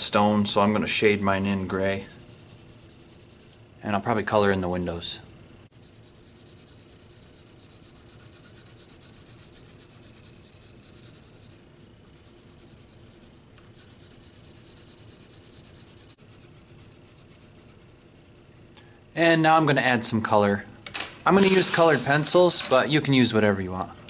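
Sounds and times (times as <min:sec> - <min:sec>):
pencil scratching on paper: 0:00.6 - 0:03.6, 0:05.7 - 0:18.8.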